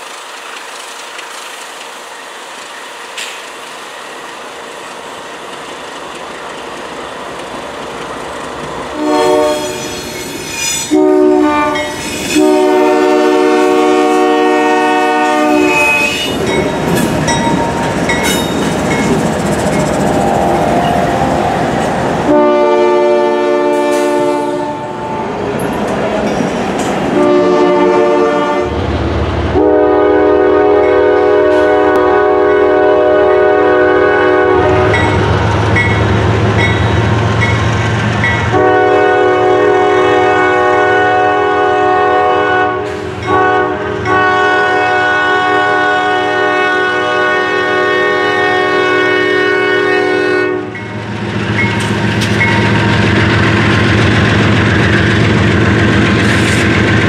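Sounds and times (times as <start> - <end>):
train rumbling past: 0.0 - 57.0
train air horn blasts: 8.9 - 16.4, 20.0 - 25.3, 27.2 - 28.8, 29.5 - 35.3, 38.4 - 50.8.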